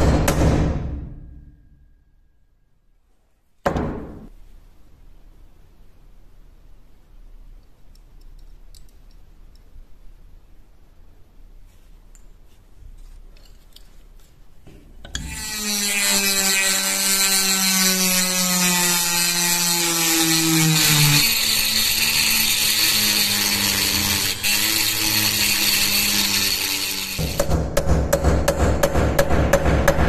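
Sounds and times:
rotary tool grinding metal: 15.1s - 27.4s.

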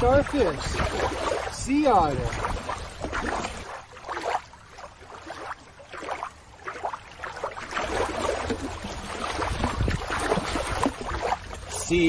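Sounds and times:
water splashing and lapping: 0.0s - 12.0s.

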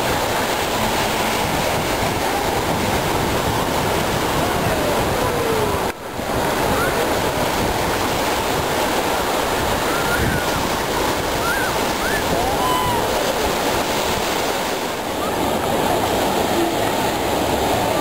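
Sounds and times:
surf breaking on beach: 0.0s - 18.0s
faint distant shouts: 11.4s - 13.6s.

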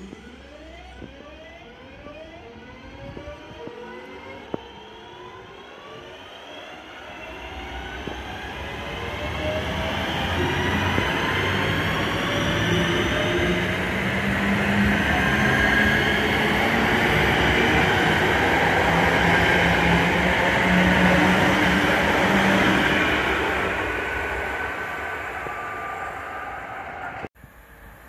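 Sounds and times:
electric train whine: 0.0s - 28.0s
train wheels rumbling on rail: 7.2s - 28.0s.

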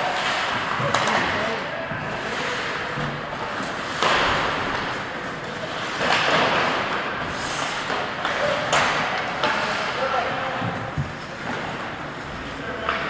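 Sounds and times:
skate blades scraping ice: 2.1s - 10.0s.

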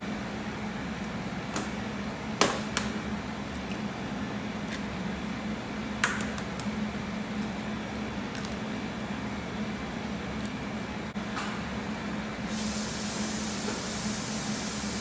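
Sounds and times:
hiss: 12.5s - 15.0s.

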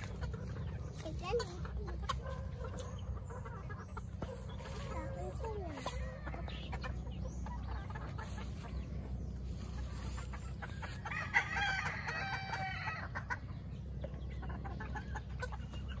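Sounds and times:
chickens clucking: 0.0s - 16.0s
rooster crowing: 11.1s - 13.0s.

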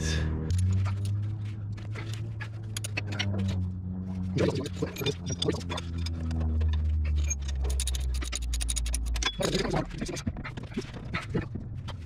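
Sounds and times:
metal tools clinking and scraping: 0.5s - 3.6s, 4.4s - 10.9s.

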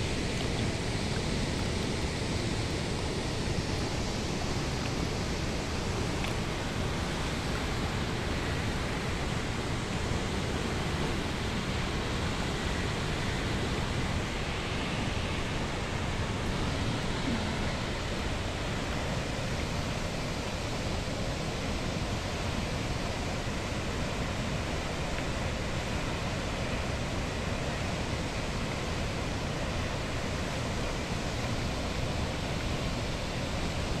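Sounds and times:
waterfall and river rushing: 0.0s - 34.0s.

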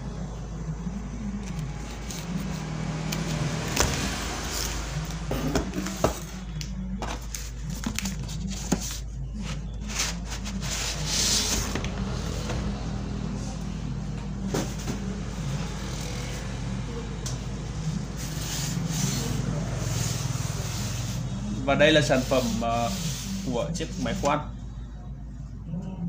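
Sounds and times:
steady low hum: 0.0s - 26.0s
cardboard rustling and scraping: 3.8s - 12.7s.

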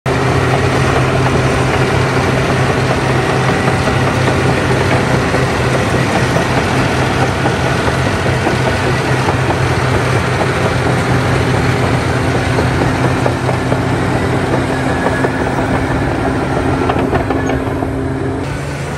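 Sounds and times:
bulldozer diesel engine running: 0.0s - 18.9s.

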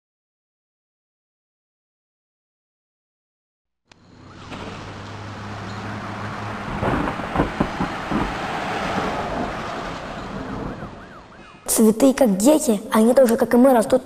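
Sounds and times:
vehicle engine humming: 3.9s - 11.8s
street traffic: 3.9s - 14.0s
knocks and clatter: 4.4s - 11.0s.

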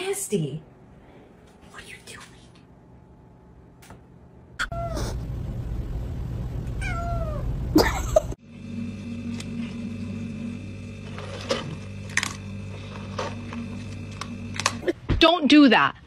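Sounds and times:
steady hum: 0.0s - 15.6s
low rumble: 5.0s - 7.8s
kitten meowing: 6.8s - 7.5s.

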